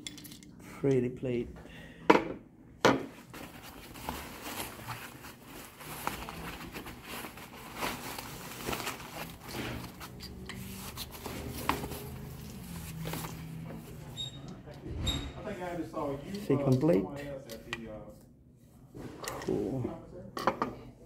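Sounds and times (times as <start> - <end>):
plastic wrap crinkling: 3.2 - 14.0.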